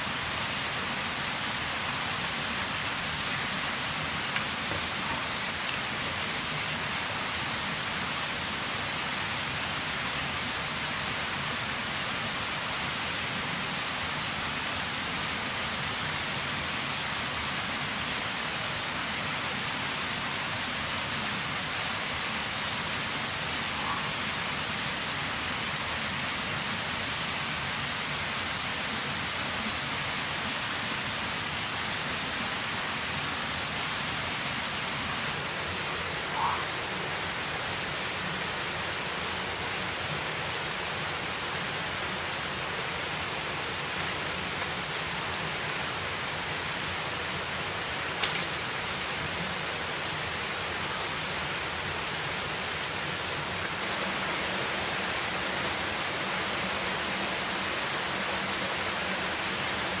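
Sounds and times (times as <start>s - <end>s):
wet forest hiss: 0.0s - 60.0s
insect chirping in pulses: 35.4s - 59.7s.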